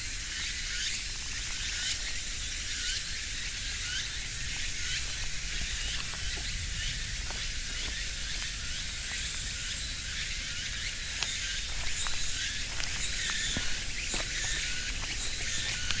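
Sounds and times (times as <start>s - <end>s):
insect chorus hiss: 0.0s - 16.0s
low wind rumble: 3.2s - 16.0s.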